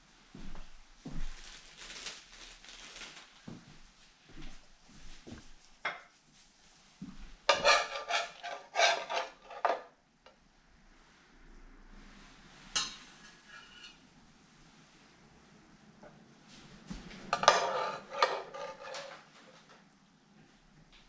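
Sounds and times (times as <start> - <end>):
dishes and utensils clattering: 7.5 - 9.9, 12.8 - 14.0, 17.3 - 19.6.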